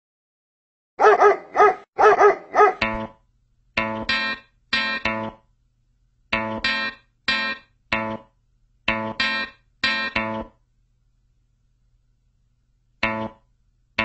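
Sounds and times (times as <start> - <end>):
dog barking: 1.0 - 2.8
distorted electric guitar chords: 2.8 - 3.2, 3.8 - 5.4, 6.3 - 8.3, 8.9 - 10.6, 13.0 - 13.4.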